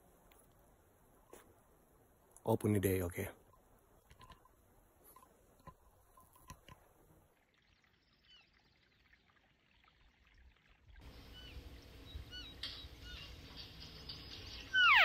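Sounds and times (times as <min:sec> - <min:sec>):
high chirping calls: 0:11.2 - 0:15.0.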